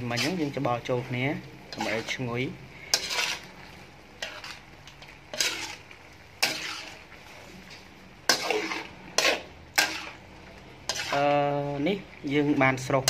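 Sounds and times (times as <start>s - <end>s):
spatula scraping metal wok: 0.0s - 11.8s
food sizzling: 0.0s - 13.0s.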